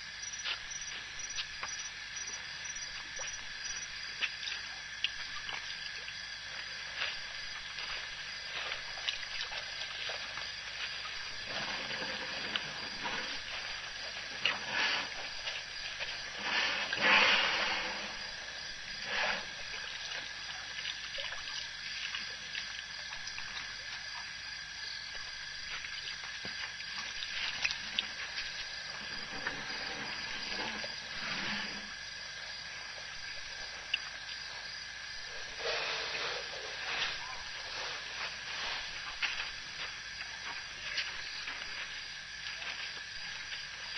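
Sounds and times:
faint high whine: 0.0s - 22.4s
steady hiss: 0.0s - 43.9s
water splashing and trickling: 0.0s - 43.9s.

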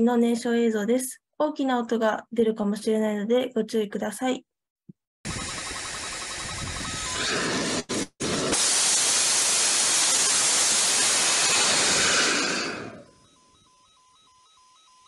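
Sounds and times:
rocket engine roaring: 5.3s - 13.1s
rocket engine hiss: 8.3s - 13.1s.

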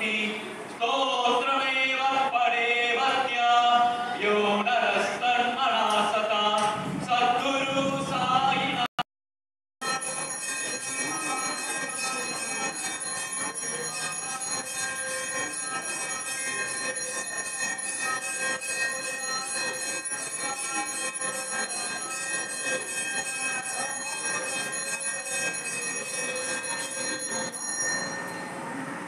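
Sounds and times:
temple bells ringing: 9.8s - 28.6s.

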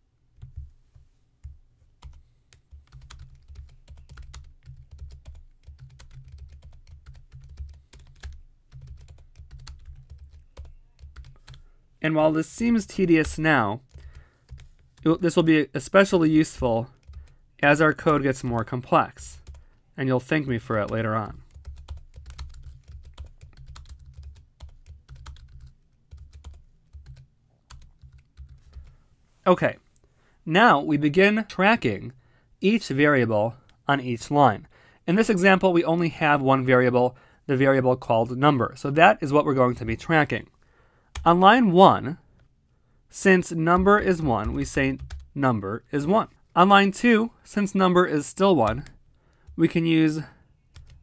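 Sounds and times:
typing on computer keyboard: 1.4s - 11.6s, 20.9s - 28.9s, 50.8s - 51.0s.

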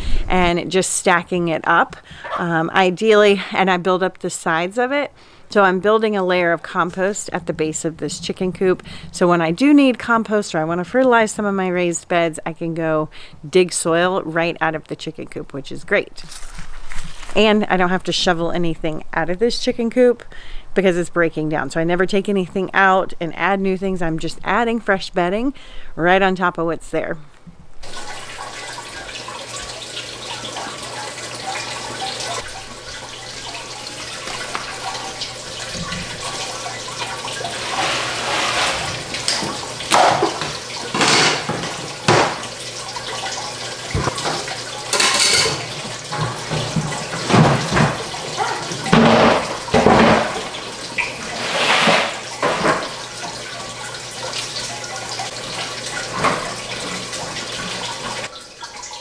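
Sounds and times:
water trickling and splashing: 27.8s - 59.0s
plastic tower knocks and splashes: 39.4s - 42.4s.

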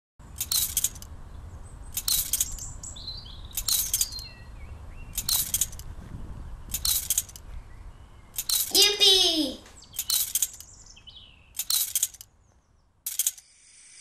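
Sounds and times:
birds chirping: 0.2s - 13.6s
trampoline springs jangling: 0.3s - 1.1s, 1.9s - 2.7s, 3.5s - 4.3s, 5.2s - 5.9s, 6.7s - 7.4s, 8.4s - 10.8s, 11.6s - 12.3s, 13.1s - 13.4s.

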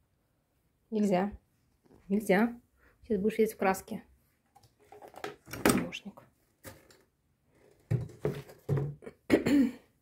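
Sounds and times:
objects knocking on table: 7.8s - 9.1s.

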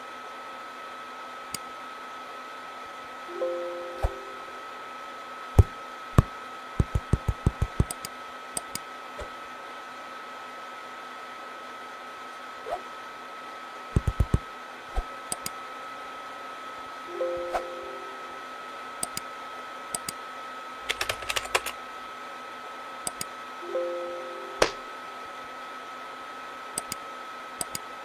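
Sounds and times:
computer fan whirring hum: 0.0s - 28.0s
computer error chime: 3.3s - 4.7s, 17.1s - 18.4s, 23.6s - 25.0s
mouse clicks: 6.2s - 8.9s, 14.0s - 14.4s, 15.3s - 15.6s, 19.0s - 19.3s, 20.0s - 20.2s, 23.1s - 23.3s, 26.8s - 27.0s, 27.6s - 27.9s.

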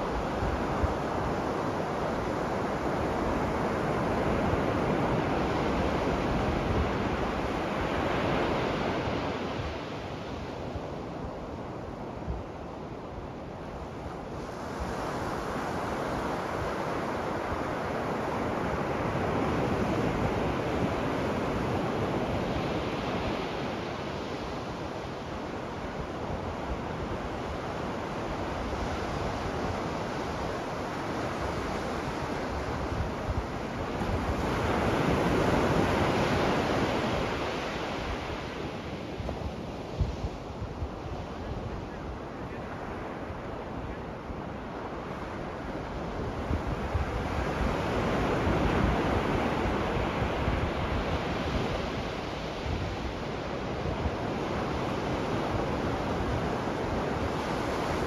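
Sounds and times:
ocean waves breaking on beach: 0.0s - 58.0s.

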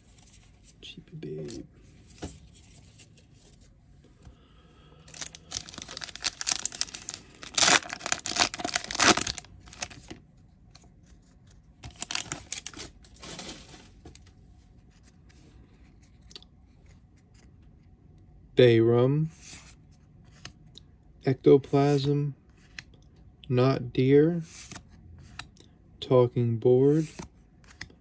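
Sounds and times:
foil wrapper ripping: 5.1s - 10.0s, 12.0s - 12.8s
wrapper crinkling: 5.1s - 10.2s, 11.9s - 13.9s.

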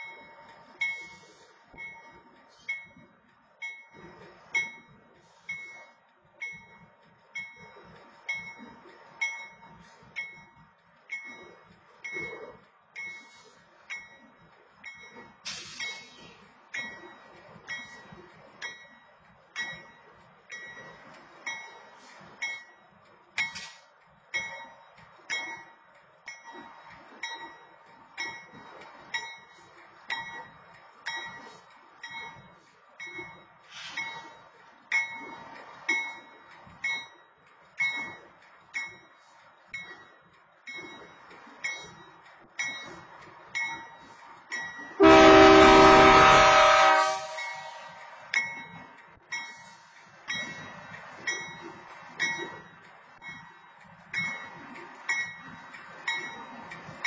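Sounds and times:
railroad crossing bell ringing: 0.0s - 57.0s
train horn blast: 45.0s - 48.2s.

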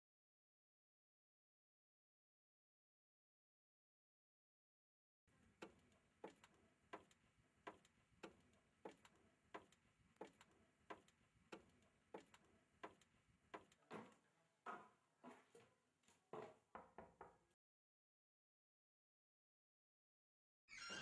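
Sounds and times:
high heels on wooden stairs: 5.6s - 15.6s.

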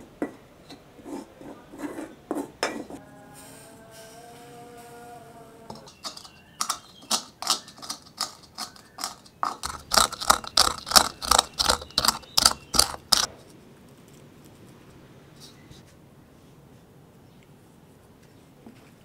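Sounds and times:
wooden pestle pounding in mortar: 5.8s - 13.3s.

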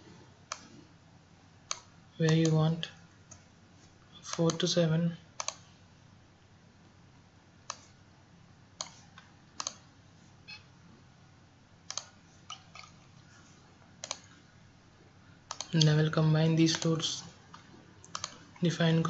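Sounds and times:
faint steady hiss: 0.0s - 19.0s
computer mouse clicks: 0.5s - 0.8s, 1.7s - 2.6s, 5.4s - 5.7s, 7.7s - 7.9s, 8.8s - 9.8s, 11.9s - 13.0s, 14.0s - 14.4s, 15.5s - 15.9s, 16.7s - 18.6s.

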